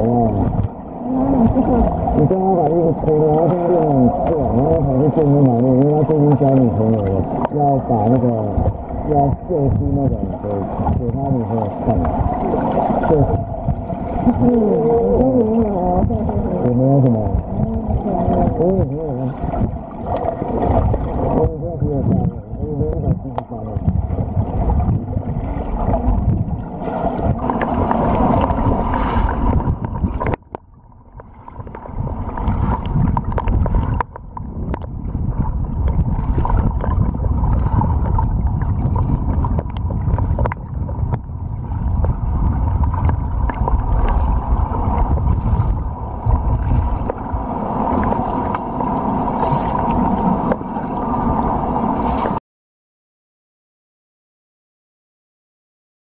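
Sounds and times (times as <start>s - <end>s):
underwater rumble of swimming: 0.0s - 52.4s.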